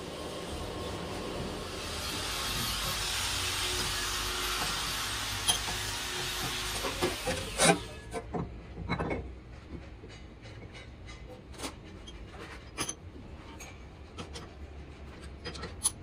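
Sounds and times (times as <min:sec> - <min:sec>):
steel parts clanking: 0:04.6 - 0:09.3, 0:10.1 - 0:16.0.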